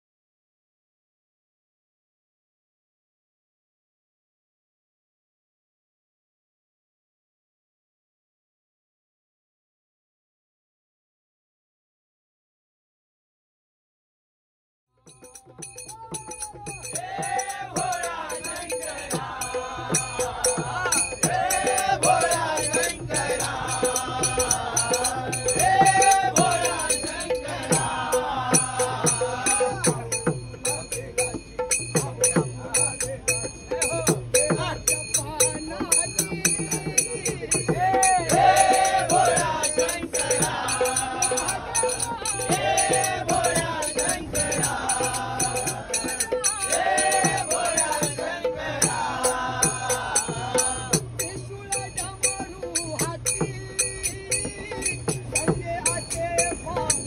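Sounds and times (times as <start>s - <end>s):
men singing devotional song: 15.0s - 57.0s
brass hand cymbals: 15.1s - 57.0s
hand drum bass strokes: 15.3s - 57.0s.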